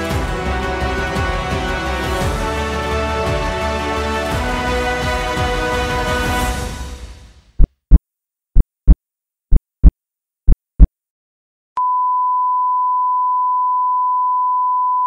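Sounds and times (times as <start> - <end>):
heartbeat double thumps: 7.6 - 10.9.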